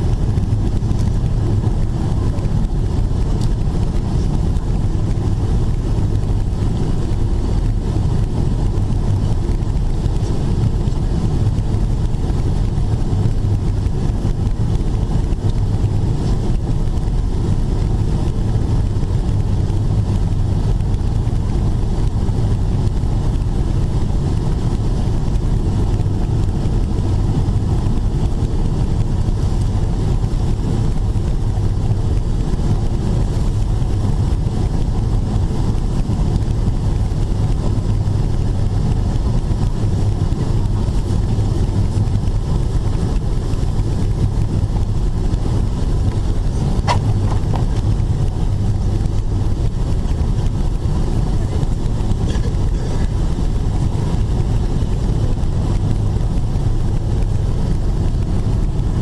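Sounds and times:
jet engines in cabin: 0.0 - 59.0
steady low hum: 0.0 - 59.0.

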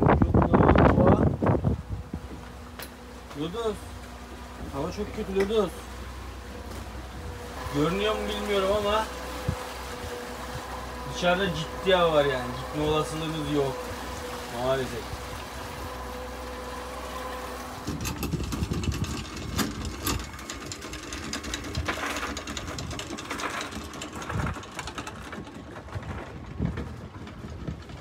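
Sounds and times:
boat engine humming: 0.0 - 28.0
wind buffeting microphone: 0.0 - 28.0.

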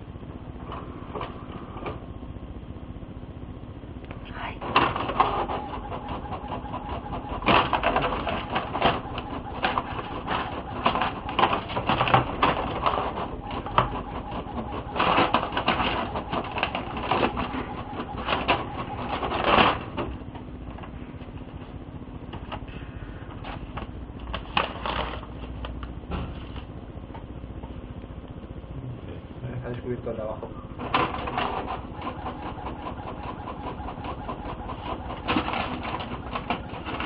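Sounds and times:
faint printer hum: 0.0 - 37.0
printer clattering and clicking: 4.6 - 21.6, 30.8 - 37.0.

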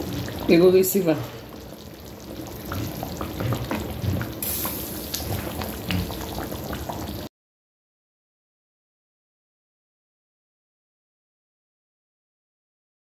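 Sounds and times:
stew bubbling and popping: 0.0 - 7.3.

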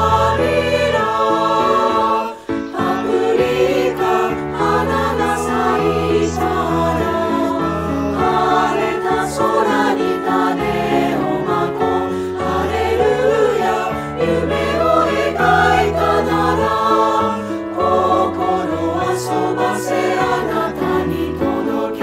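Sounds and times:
choir singing: 0.0 - 22.0.

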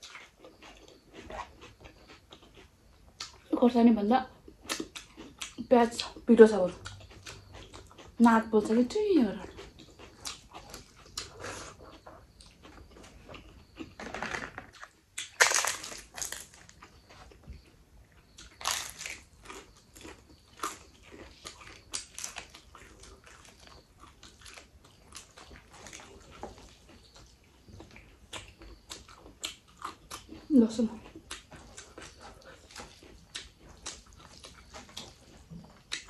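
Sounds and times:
chewing: 0.0 - 3.5, 4.3 - 14.0, 14.7 - 36.0
crisp wafer crunching: 14.7 - 16.9, 18.4 - 26.2.

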